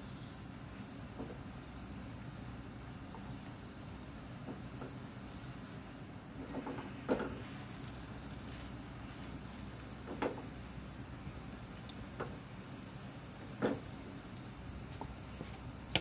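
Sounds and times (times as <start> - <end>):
hash browns sizzling in oil: 0.0 - 16.0.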